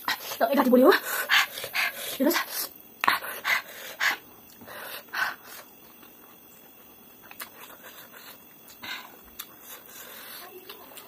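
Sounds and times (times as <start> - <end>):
chewing mouth clicks: 7.2 - 9.9.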